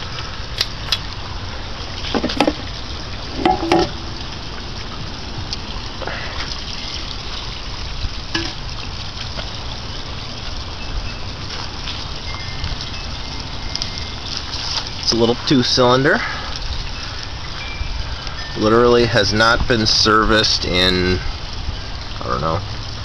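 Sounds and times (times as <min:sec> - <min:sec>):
outboard motor churning water: 0:00.0 - 0:23.0
engine cover clicks and clatters: 0:02.0 - 0:02.8.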